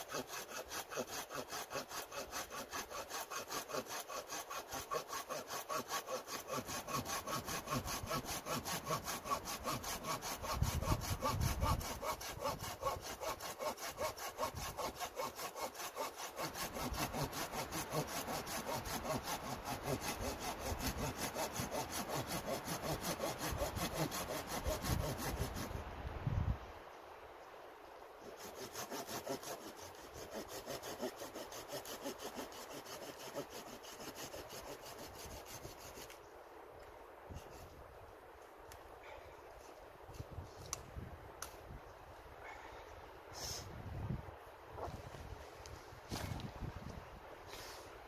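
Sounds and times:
hand saw cutting wood: 0.0 - 25.7, 28.2 - 36.2.

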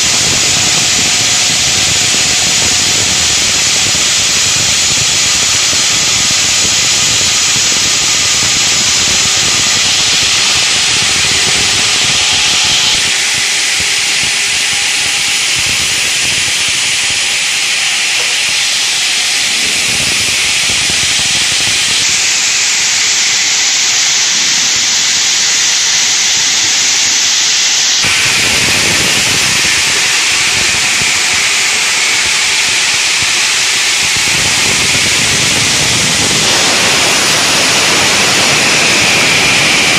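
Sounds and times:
cooling water spray: 0.0 - 39.9
saw blades grinding stone: 7.6 - 23.9.

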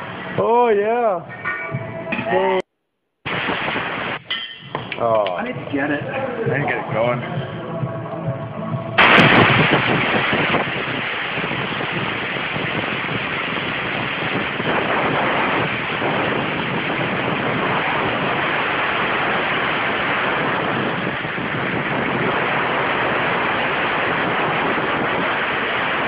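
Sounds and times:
machine running with rushing hiss: 5.4 - 26.0.

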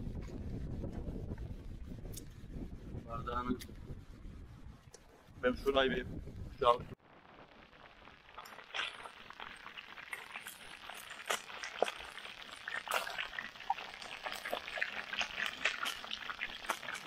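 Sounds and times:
water trickling and splashing: 7.5 - 17.0.

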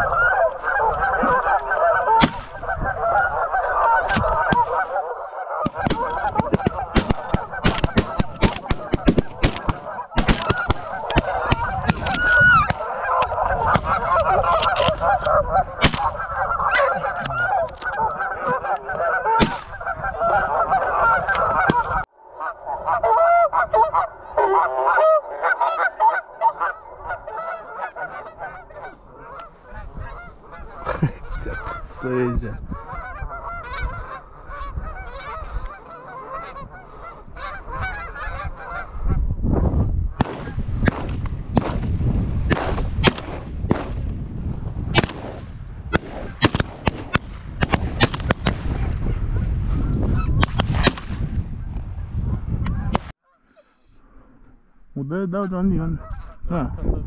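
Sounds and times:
geese honking in flight: 0.0 - 39.3, 55.2 - 56.5.

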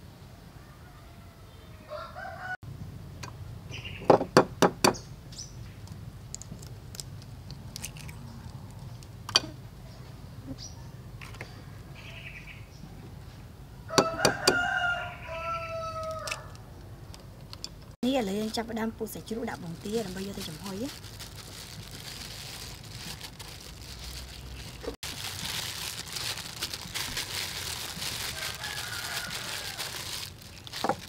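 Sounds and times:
rooster crowing: 0.6 - 2.6, 13.9 - 16.6, 28.2 - 30.2.

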